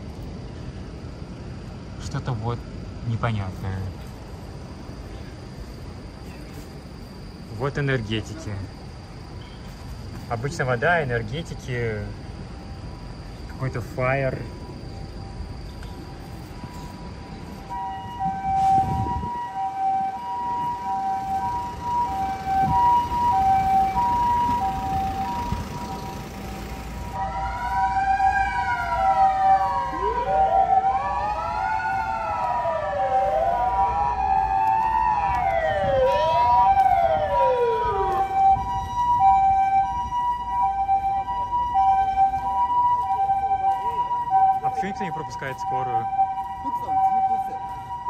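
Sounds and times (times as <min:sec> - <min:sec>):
two-tone ambulance siren: 0:10.3 - 0:48.0
wailing siren: 0:12.4 - 0:48.0.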